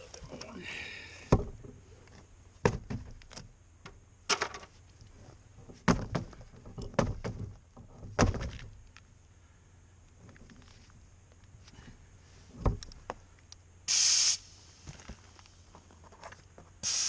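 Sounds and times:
tire bouncing on ground: 2.6 - 4.7, 5.6 - 9.0.

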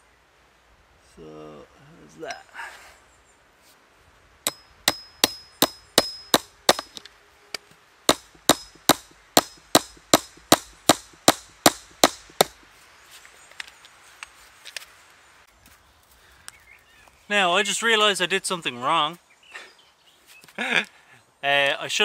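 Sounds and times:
hammer striking metal staple: 4.9 - 7.0, 8.1 - 12.6.

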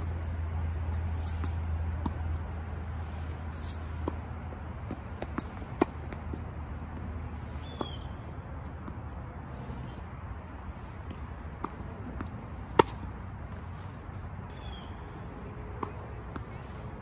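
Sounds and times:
racquet hitting tennis ball: 3.2 - 9.1, 11.0 - 14.0
ball bouncing: 3.2 - 9.2
shoe squeak on court: 7.6 - 8.2.

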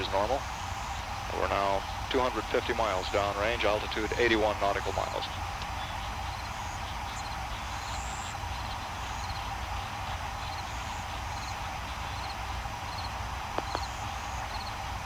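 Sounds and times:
faint high chirps: 4.9 - 14.9.

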